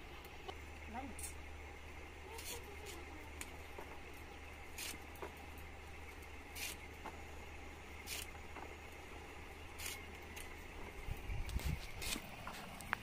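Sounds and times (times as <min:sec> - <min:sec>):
knife slicing leaf stalks: 0:04.7 - 0:05.1, 0:06.5 - 0:06.9, 0:08.0 - 0:08.4, 0:09.8 - 0:10.5.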